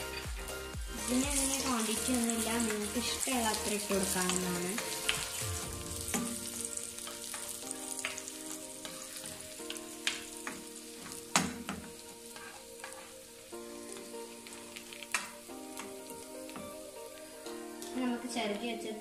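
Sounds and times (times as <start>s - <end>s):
nuts sizzling in a pan: 0.0s - 19.0s
spoon stirring: 12.3s - 13.1s.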